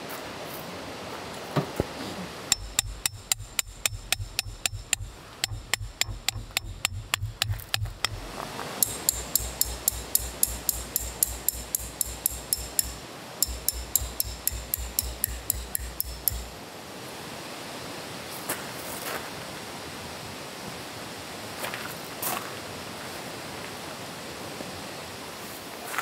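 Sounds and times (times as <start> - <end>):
hammer striking metal stake: 2.5 - 16.6
outdoor hiss: 8.0 - 26.0.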